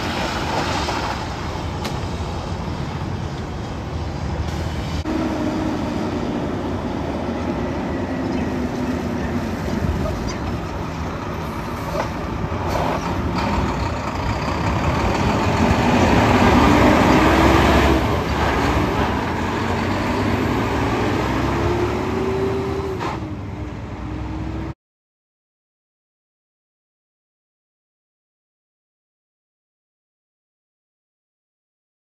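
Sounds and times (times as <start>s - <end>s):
truck diesel engine driving past: 4.4s - 24.8s.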